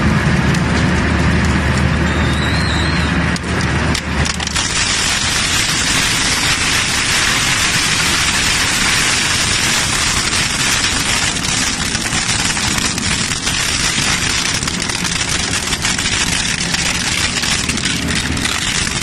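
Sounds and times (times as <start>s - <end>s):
shredder crunching scrap metal: 3.9s - 19.0s.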